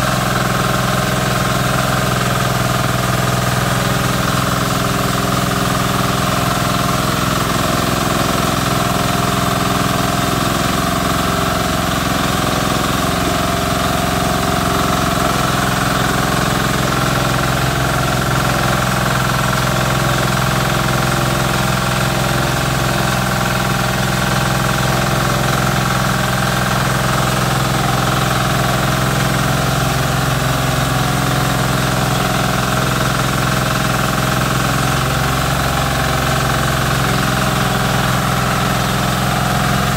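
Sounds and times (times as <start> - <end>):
small petrol engine running: 0.0 - 39.9.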